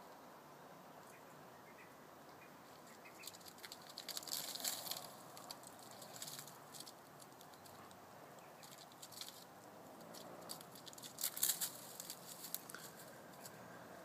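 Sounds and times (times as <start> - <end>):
rustling brush: 2.7 - 13.7
cat claws scratching bark: 3.2 - 13.6.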